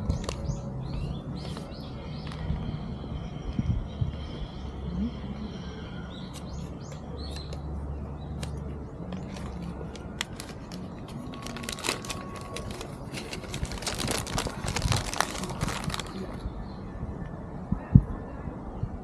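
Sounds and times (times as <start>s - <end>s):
small birds chirping: 0.0s - 10.0s
outdoor background noise: 0.0s - 19.0s.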